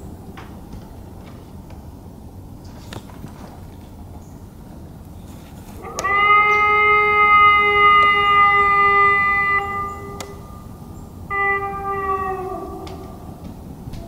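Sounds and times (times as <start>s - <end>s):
warning siren: 5.8s - 14.0s.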